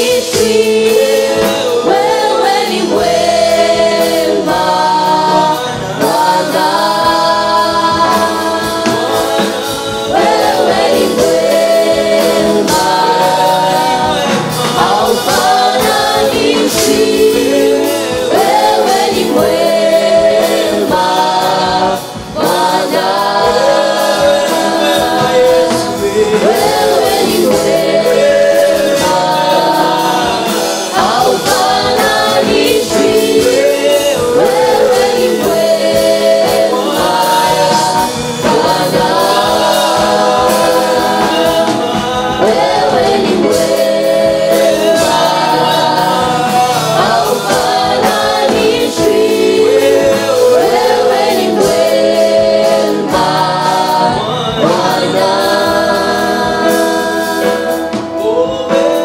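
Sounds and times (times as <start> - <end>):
group singing gospel in harmony: 0.0 - 59.0.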